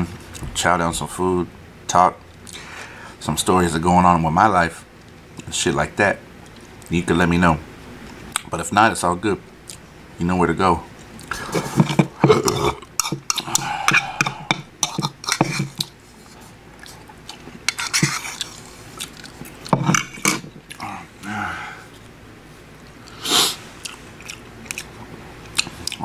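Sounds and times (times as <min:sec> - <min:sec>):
chewing: 0:12.2 - 0:16.0, 0:16.8 - 0:19.7, 0:23.8 - 0:26.0
metal spoon scraping ceramic bowl: 0:17.7 - 0:18.4.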